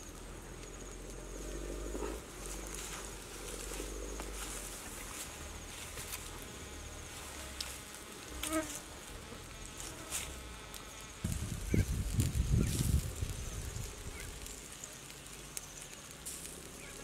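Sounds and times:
insects buzzing: 0.0s - 17.0s
sharp crackles: 0.0s - 17.0s
low rumble: 11.2s - 14.4s.

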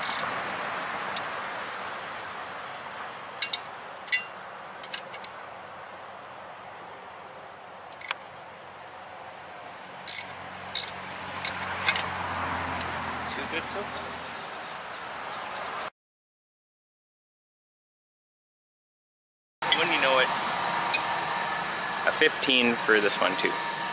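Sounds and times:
wrench metallic clicks: 0.0s - 0.2s, 10.1s - 12.0s
steady outdoor hiss: 0.0s - 15.9s, 19.6s - 23.9s.

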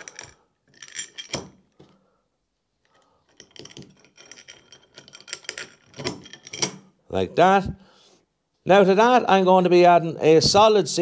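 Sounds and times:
metal bolts clinking on metal: 0.0s - 1.7s, 3.3s - 7.0s.

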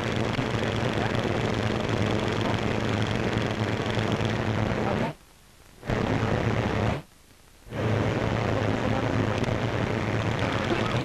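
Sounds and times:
old soundtrack rumble and hiss: 0.0s - 11.0s.

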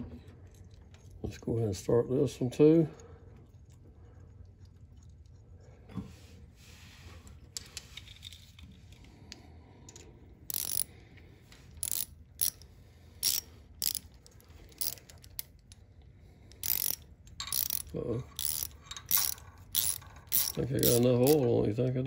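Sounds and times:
socket ratchet clicking: 9.9s - 11.0s, 11.7s - 15.8s, 16.5s - 21.4s.

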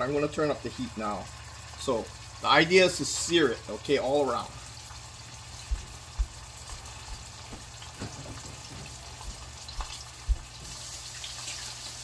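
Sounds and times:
oil sizzling in a pot: 0.0s - 12.0s
dull low thumps: 5.5s - 10.6s.

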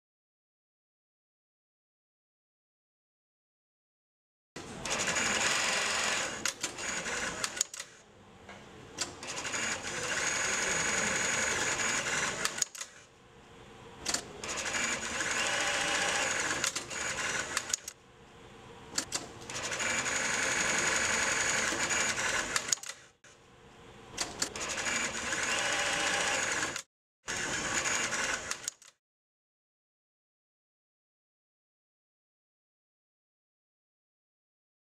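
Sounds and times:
industrial sewing machine stitching: 4.8s - 7.9s, 9.0s - 12.9s, 14.1s - 17.9s, 19.1s - 23.2s, 24.3s - 28.8s
sewing machine clicks: 12.0s - 13.0s, 14.1s - 18.0s, 21.3s - 23.2s, 28.0s - 29.0s.

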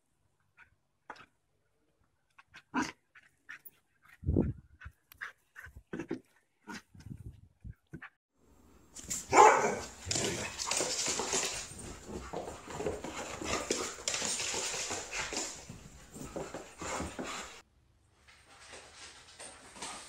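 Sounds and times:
dog barking and vocalizing: 2.4s - 4.2s, 9.2s - 10.8s.

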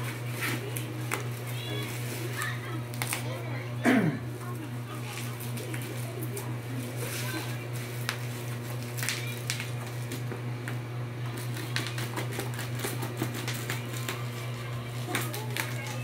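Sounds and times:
bubble wrap crinkling and crackling: 0.0s - 16.0s
steady low hum: 0.0s - 16.0s.

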